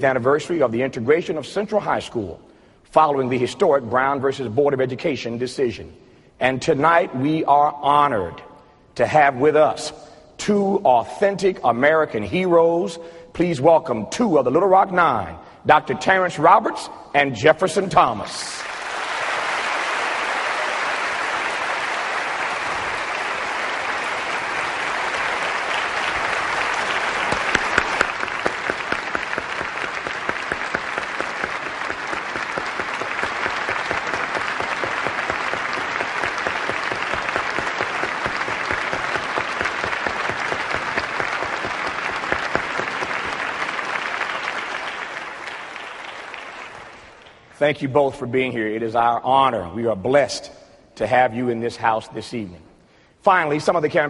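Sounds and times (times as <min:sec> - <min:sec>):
audience applauding: 0:18.6 - 0:47.4.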